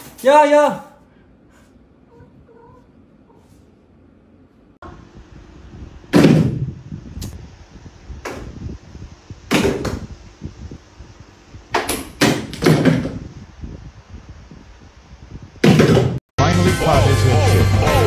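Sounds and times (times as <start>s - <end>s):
loud thumps and knocks: 6.1s - 6.7s, 9.5s - 10.1s, 11.7s - 13.3s, 15.6s - 16.2s.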